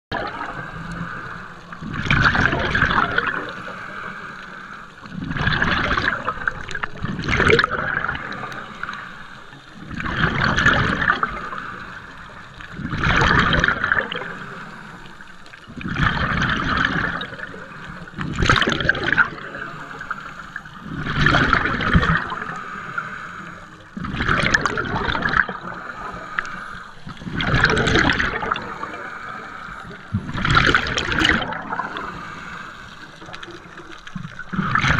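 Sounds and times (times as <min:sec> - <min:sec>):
regulator exhale bubbling: 0:00.1 - 0:34.9
regulator hiss: 0:28.3 - 0:30.4, 0:31.5 - 0:34.0.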